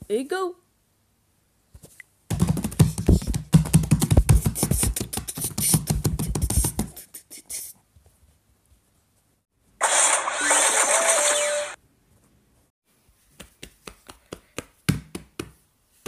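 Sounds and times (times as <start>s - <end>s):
fast clicks and low thumps: 2.3s - 6.7s.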